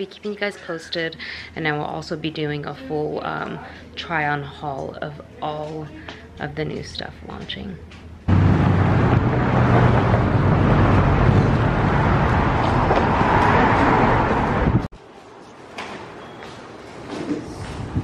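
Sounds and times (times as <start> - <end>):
road traffic rumble: 8.3 - 15.0.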